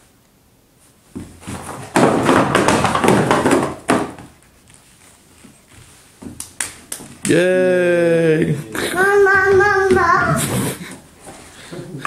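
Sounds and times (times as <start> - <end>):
cardboard blocks toppling onto floor: 1.1 - 4.5.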